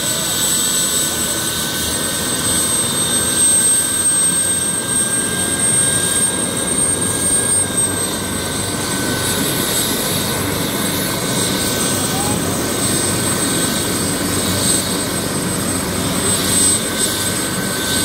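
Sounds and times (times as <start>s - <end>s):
helicopter rotor noise: 0.0s - 18.0s
high turbine whine: 0.0s - 18.0s.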